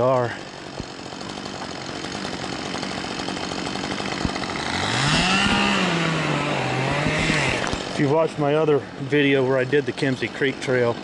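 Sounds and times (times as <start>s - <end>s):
chainsaw revving: 0.0s - 11.0s.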